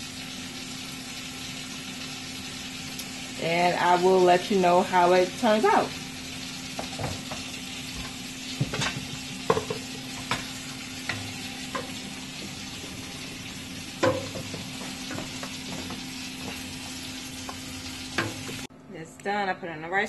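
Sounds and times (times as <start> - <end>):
wooden spoon knocking metal pot: 6.8 - 12.8, 13.9 - 18.6
spoon stirring in pot: 6.8 - 18.7.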